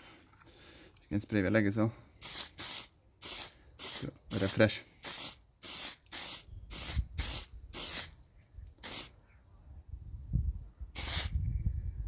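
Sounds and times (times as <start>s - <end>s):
aerosol spray can hissing: 2.2s - 8.2s, 8.8s - 9.2s, 11.0s - 11.4s.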